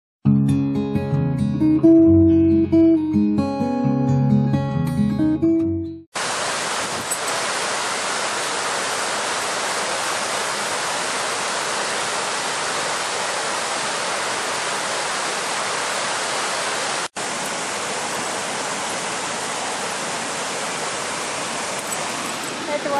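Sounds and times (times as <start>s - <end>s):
waterfall rushing over rocks: 6.2s - 22.9s.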